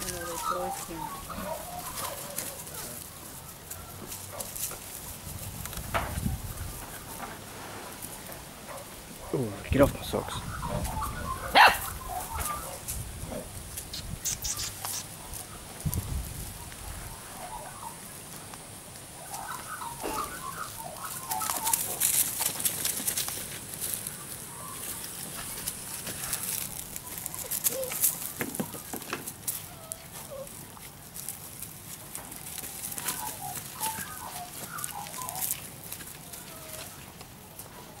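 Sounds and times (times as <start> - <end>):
dog rustling through leaves: 0.0 - 5.8, 19.3 - 37.1
short squeaky calls: 13.9 - 15.1.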